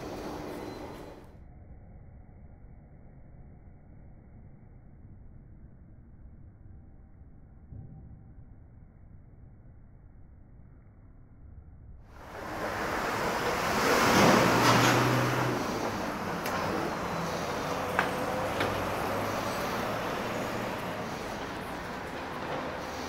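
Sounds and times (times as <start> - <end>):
low engine hum: 0.0 - 1.3, 12.2 - 23.0
passing vehicles rushing: 0.0 - 1.3, 12.1 - 23.0.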